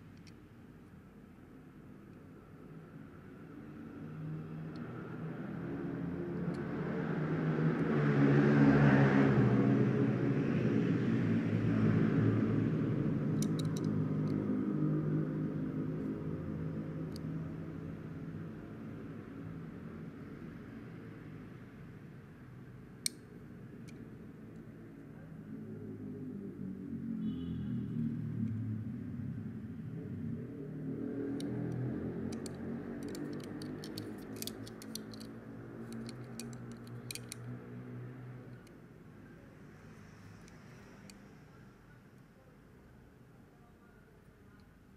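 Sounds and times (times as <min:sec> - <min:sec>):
small clicks: 0:13.4 - 0:14.4, 0:31.3 - 0:37.6
fingers tapping model car: 0:31.4 - 0:35.3.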